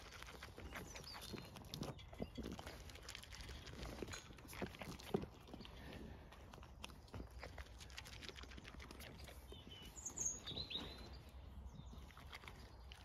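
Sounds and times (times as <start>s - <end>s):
sheep chewing feed: 0.0s - 13.0s
bird chirps: 9.2s - 13.0s.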